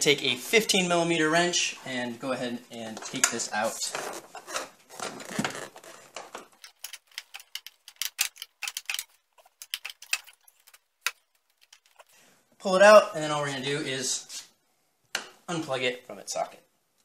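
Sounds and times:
rustling handling: 3.1s - 12.2s
wrench clicking: 6.6s - 12.0s.

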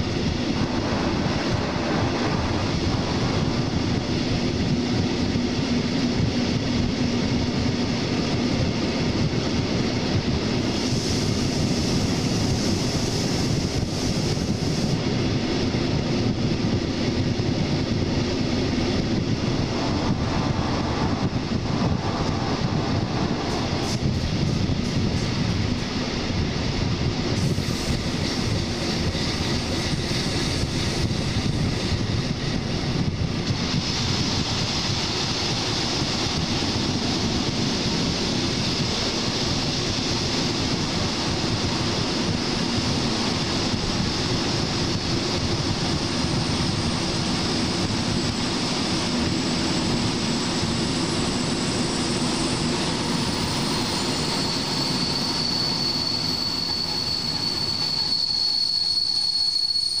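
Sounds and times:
train wheel and wind noise: 0.0s - 60.0s
high-pitched wheel squeal: 43.9s - 60.0s.

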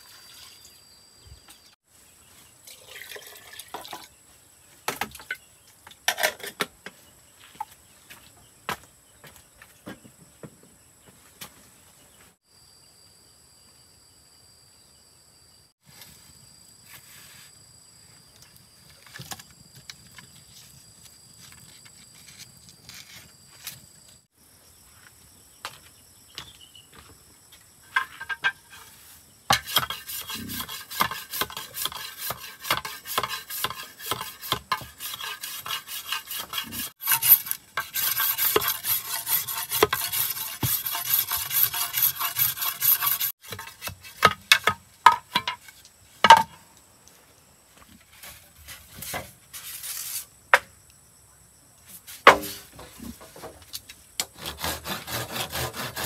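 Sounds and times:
rasping scraping strokes: 28.7s - 44.5s, 54.3s - 56.0s.

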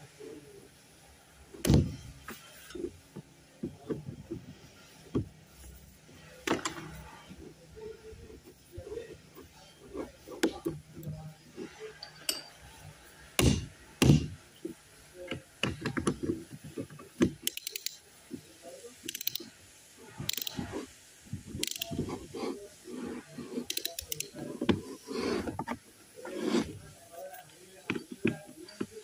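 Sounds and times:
ratchet clicking: 17.3s - 18.0s, 19.1s - 19.5s, 20.3s - 20.6s, 21.6s - 21.9s, 23.6s - 24.4s.

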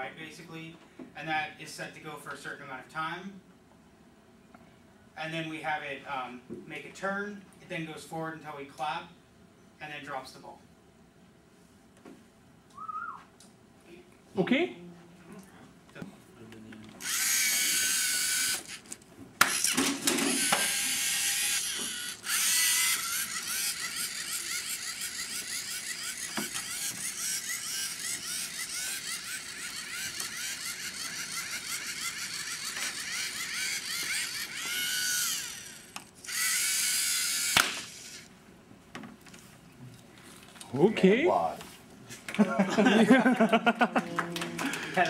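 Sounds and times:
small electric motors whining: 17.0s - 38.3s
sharp snap: 37.5s - 37.9s.

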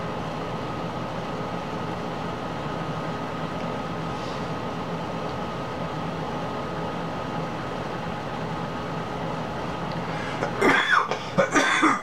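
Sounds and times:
faint hum: 0.0s - 12.0s
man coughing and clearing throat: 10.4s - 12.0s.

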